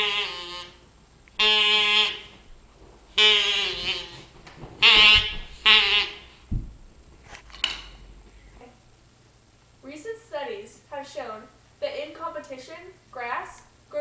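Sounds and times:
low thump: 6.4s - 7.5s.

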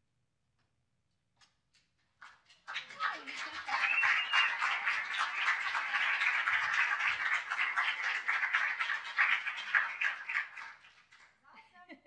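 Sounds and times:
audience applauding: 2.2s - 11.3s.

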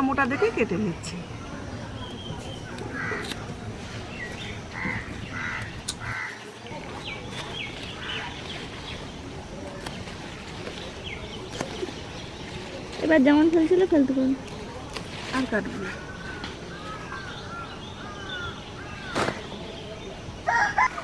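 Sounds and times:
small birds chirping: 0.0s - 20.4s
crows cawing: 2.9s - 3.3s, 4.7s - 6.4s.

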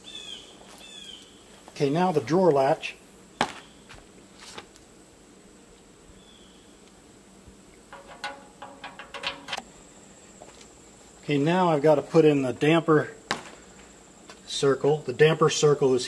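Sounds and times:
small metal clicks: 7.9s - 9.6s
metallic ring: 7.9s - 9.7s.

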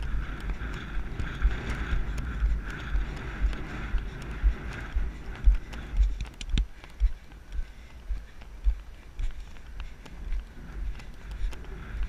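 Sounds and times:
sharp clicks: 0.0s - 7.5s
horse hooves on sand: 0.0s - 12.0s.

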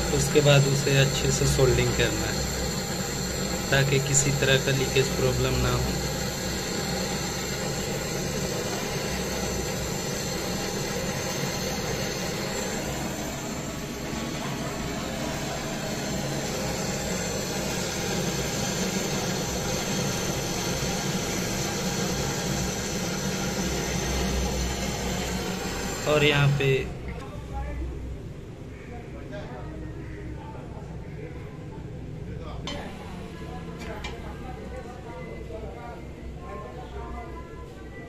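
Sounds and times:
torch flame hissing: 0.0s - 27.2s, 32.7s - 35.0s.

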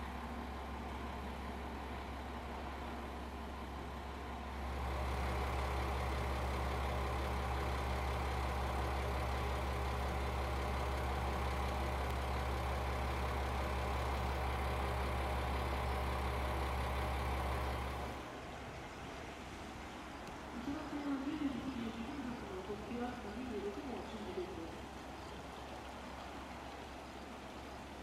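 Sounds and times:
diesel engine idling: 0.0s - 18.6s.

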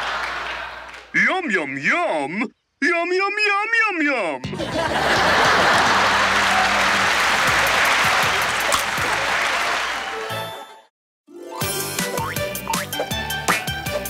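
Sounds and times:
applause: 0.0s - 1.2s, 5.2s - 10.8s
cartoon music with bass line: 4.4s - 5.8s, 11.3s - 14.0s.

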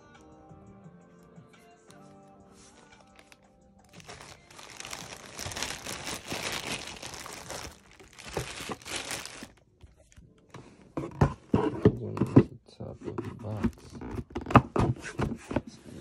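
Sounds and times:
plastic and tissue paper crinkling: 2.6s - 10.2s.

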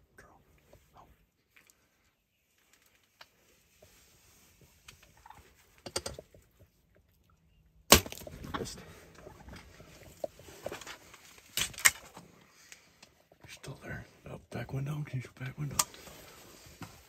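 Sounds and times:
rustling: 0.7s - 5.8s.

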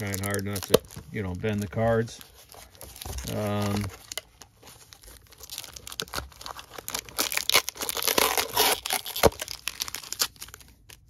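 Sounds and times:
foil tearing: 0.0s - 1.0s, 4.8s - 10.7s
foil wrappers crinkling: 0.0s - 11.0s.

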